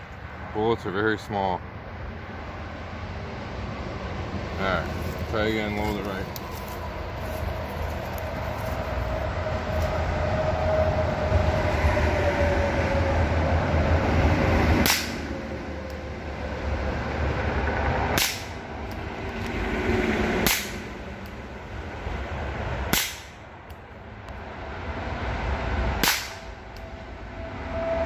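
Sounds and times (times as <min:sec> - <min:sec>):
low rumble with falling tone: 0:01.6 - 0:23.0.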